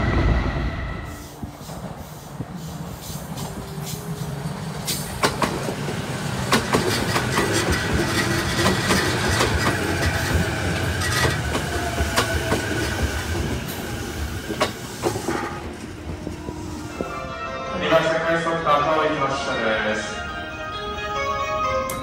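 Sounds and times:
train rumble: 0:00.0 - 0:18.6
train wheels clacking over rail joints: 0:04.8 - 0:13.8.

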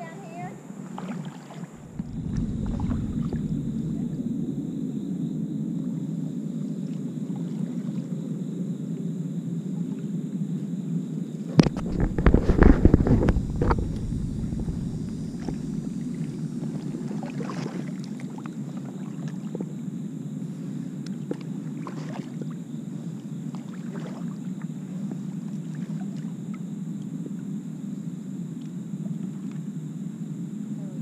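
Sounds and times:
water lapping against kayak hull: 0:00.0 - 0:08.3, 0:11.5 - 0:27.5.

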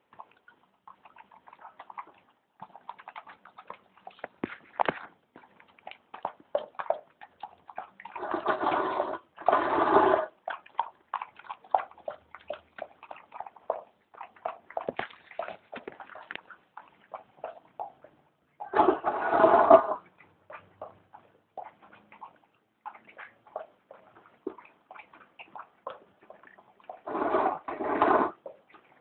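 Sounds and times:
dog lapping and chewing: 0:00.0 - 0:29.0.

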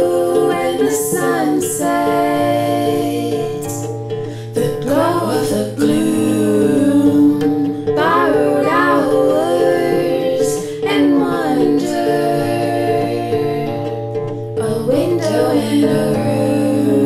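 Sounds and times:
plucked harp: 0:00.0 - 0:17.0
woman singing: 0:00.0 - 0:17.0.

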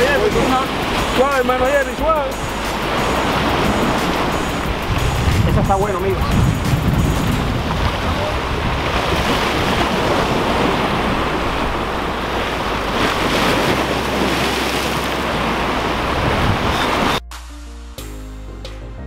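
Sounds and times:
surf washing over rocks: 0:00.0 - 0:17.2
wind rumbling on microphone: 0:02.3 - 0:17.2.

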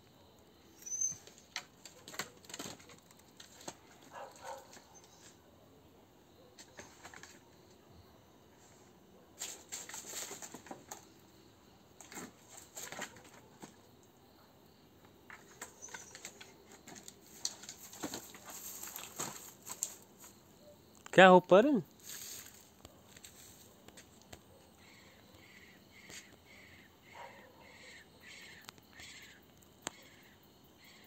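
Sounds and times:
paws rustling dry leaves: 0:22.0 - 0:23.7.

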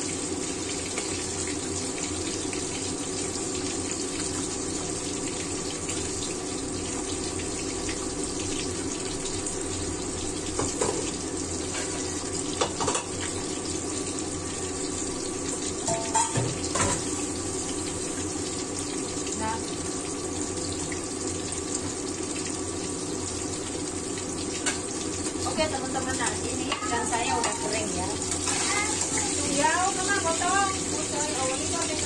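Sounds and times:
fish frying in hot oil: 0:00.0 - 0:32.0
cookware clinks and knocks: 0:15.9 - 0:17.0.

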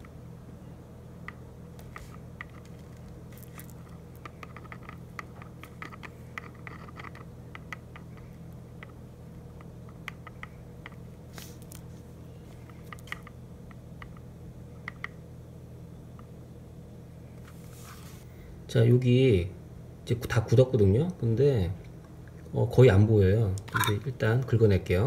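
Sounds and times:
steady low hum: 0:00.0 - 0:25.0
small clicks and crackles: 0:01.3 - 0:09.0.

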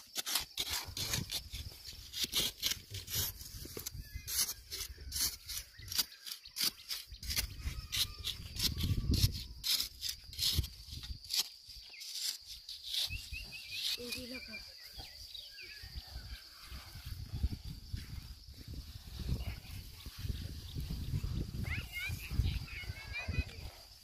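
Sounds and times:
stick scraping damp sand: 0:00.0 - 0:14.5.

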